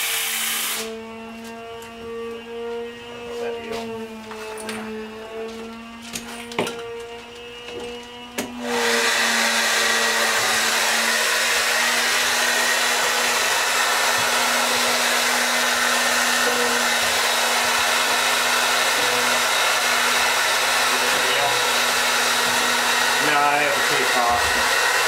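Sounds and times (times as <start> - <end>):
paint sprayer pump buzzing: 0.0 - 25.0.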